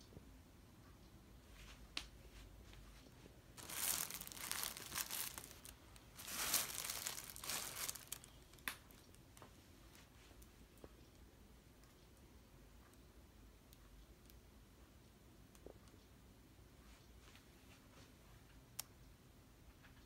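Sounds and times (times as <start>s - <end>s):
plastic packaging crinkling: 3.6s - 9.0s.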